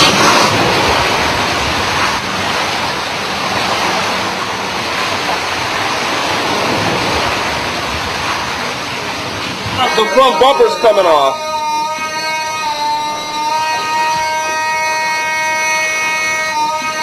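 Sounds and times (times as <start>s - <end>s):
storm wind rushing: 0.0s - 9.8s
rushing water: 0.0s - 17.0s.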